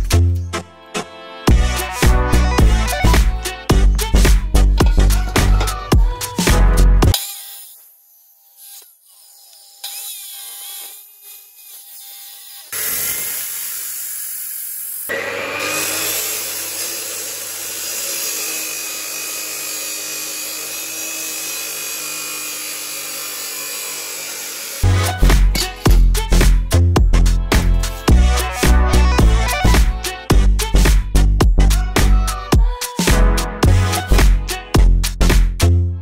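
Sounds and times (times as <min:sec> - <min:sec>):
cut-off saw grinding steel: 0:01.7 - 0:26.4.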